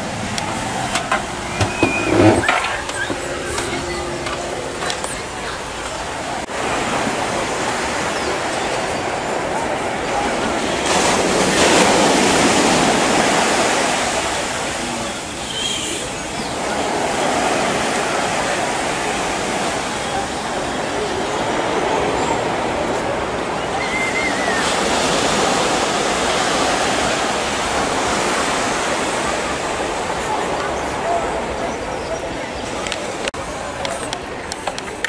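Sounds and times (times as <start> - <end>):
small waves breaking on beach: 4.9 - 32.0.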